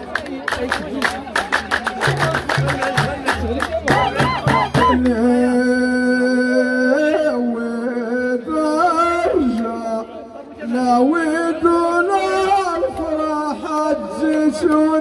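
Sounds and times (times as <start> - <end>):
frame drum beats: 1.5 - 5.1.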